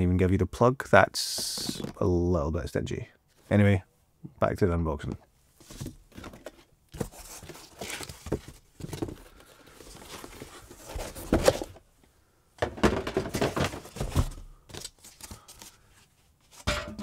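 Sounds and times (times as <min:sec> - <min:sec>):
cardboard and foam packaging rustling: 0:05.5 - 0:11.9, 0:12.6 - 0:16.7.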